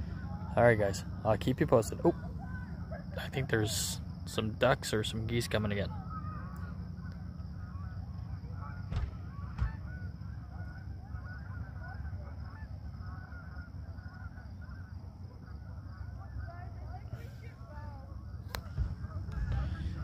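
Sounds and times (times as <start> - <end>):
geese honking: 0.0 - 20.0
low rumble: 18.2 - 20.0.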